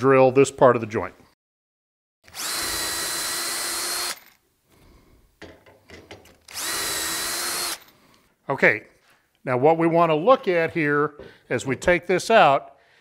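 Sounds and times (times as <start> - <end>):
cordless drill whining: 2.2 - 4.4, 6.4 - 8.0.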